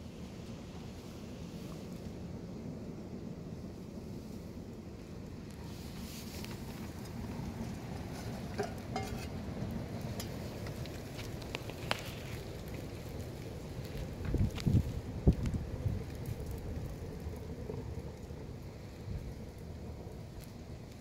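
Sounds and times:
fire crackling: 0.0s - 21.0s
fire rumbling in a stove: 0.0s - 21.0s.

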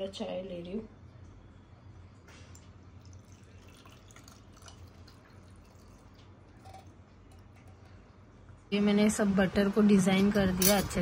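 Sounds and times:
low steady hum: 0.0s - 11.0s
tea trickling into a cup: 2.4s - 7.8s.

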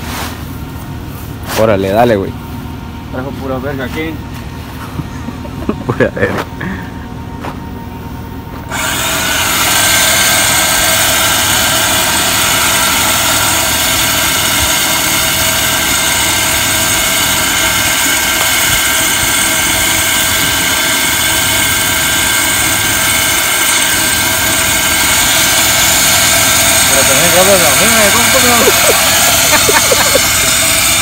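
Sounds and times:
hoist motor running: 8.5s - 31.0s.

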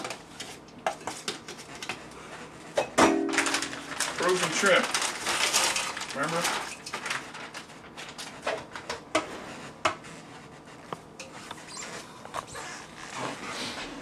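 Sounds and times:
plastic bag rustling: 3.1s - 9.0s.

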